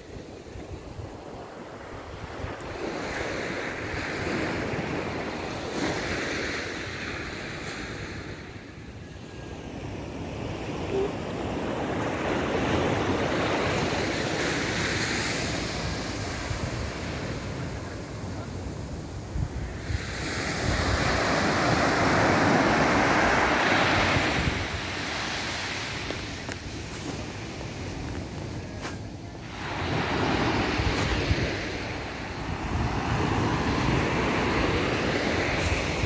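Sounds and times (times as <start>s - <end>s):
wind buffeting microphone: 18.7s - 36.0s.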